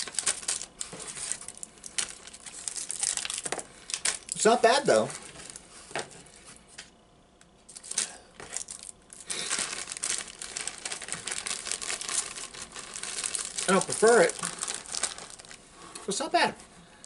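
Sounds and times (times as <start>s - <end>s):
plastic snack bag crinkling: 0.0s - 5.6s, 7.7s - 15.6s.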